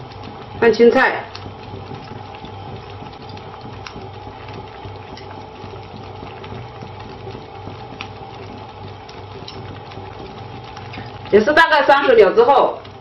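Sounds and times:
pot bubbling hiss: 0.0 - 13.0
chopsticks clicking on pot: 1.2 - 11.4.

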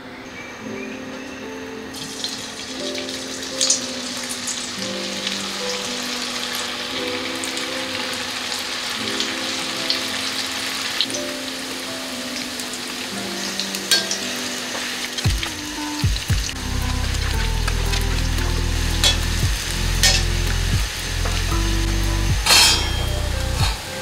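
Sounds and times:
deep-frying sizzle with pops: 12.6 - 24.0.

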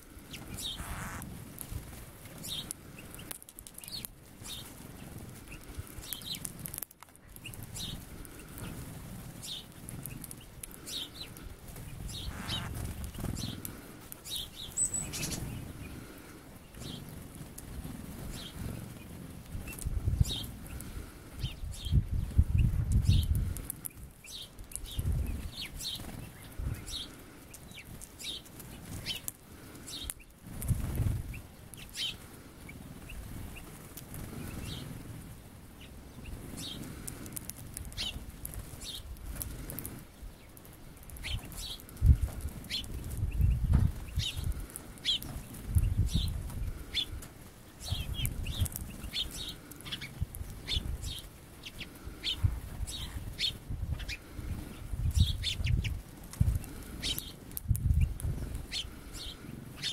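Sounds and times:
songbirds chirping: 0.0 - 59.9
bird wingbeats fluttering: 0.1 - 21.2, 22.1 - 59.9.

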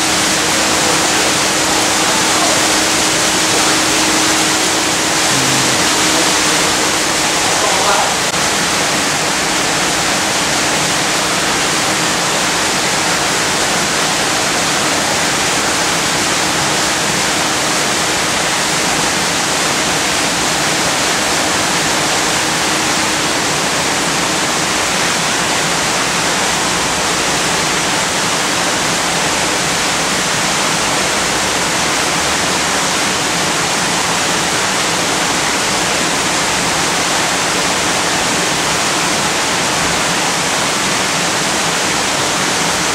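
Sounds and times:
loud rushing water noise: 0.0 - 42.9.

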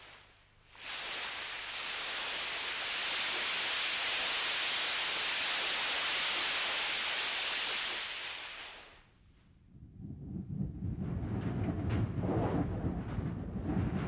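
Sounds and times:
steady rushing hiss: 0.0 - 9.2.

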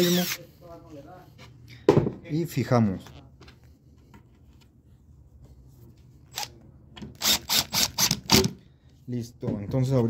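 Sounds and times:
drill driving a screw: 0.0 - 0.4, 7.2 - 8.5.

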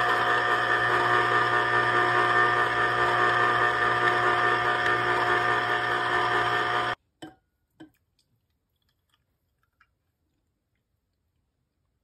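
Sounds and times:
citrus juicer motor hum: 0.0 - 7.0.

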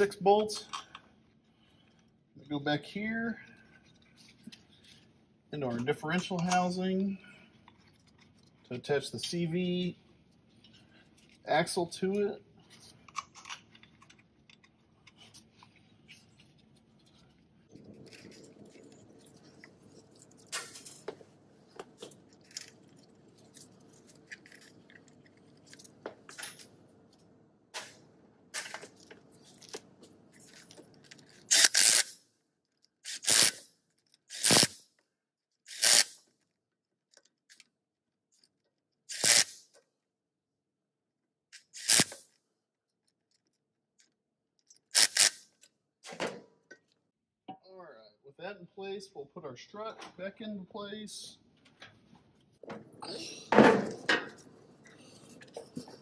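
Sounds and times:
impact wrench bursts: 31.5 - 32.2, 33.0 - 33.7, 34.3 - 34.8, 35.7 - 36.2, 39.1 - 39.6, 41.6 - 42.2, 45.0 - 45.4.

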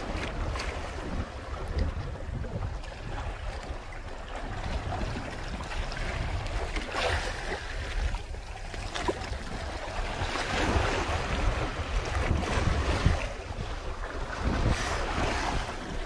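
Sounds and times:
water rushing past hulls: 0.0 - 16.0
wind buffeting microphone: 0.0 - 16.0.

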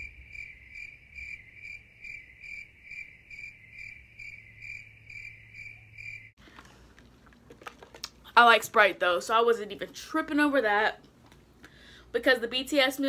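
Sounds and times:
cricket chirping: 0.0 - 6.4.

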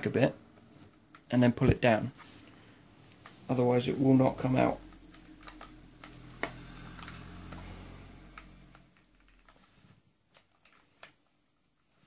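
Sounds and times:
low hum: 2.7 - 9.2.

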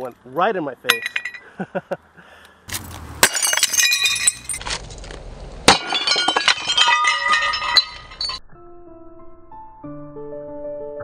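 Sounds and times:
shards clinking and ringing: 0.9 - 1.5, 3.2 - 4.6, 5.7 - 8.4
ceramic mug shattering: 3.2 - 4.6, 5.7 - 8.4.

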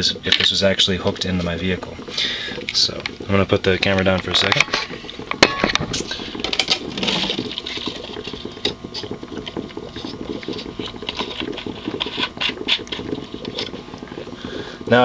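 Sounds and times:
gas bubbling through water: 0.0 - 15.0
camera knocking on table: 5.3 - 6.0.

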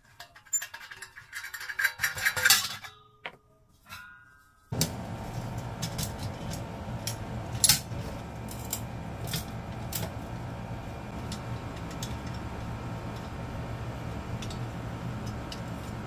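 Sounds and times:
steady low hum: 4.7 - 16.0.

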